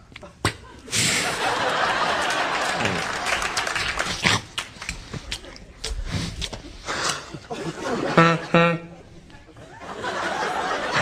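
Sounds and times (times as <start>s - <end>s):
audience laughing and applauding: 1.2s - 4.2s, 9.3s - 11.0s.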